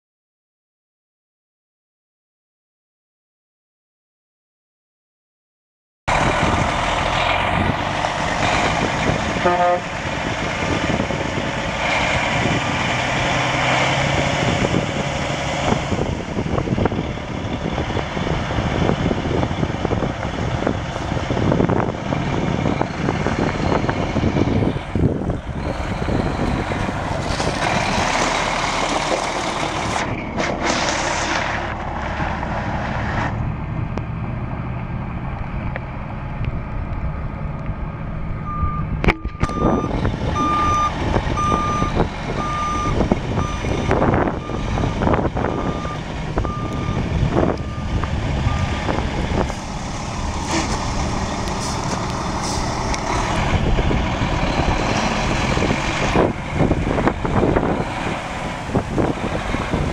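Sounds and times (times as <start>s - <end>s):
truck diesel engine running: 6.1s - 30.8s, 31.5s - 59.9s
back-up alarm beeping: 38.5s - 44.7s.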